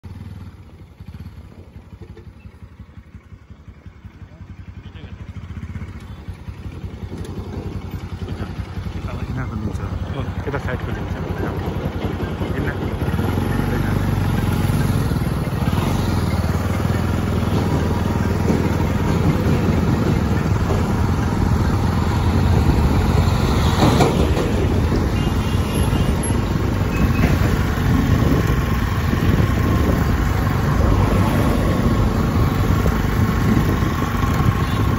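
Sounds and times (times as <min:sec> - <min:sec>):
vehicle engine and road noise: 0:00.0 - 0:34.9.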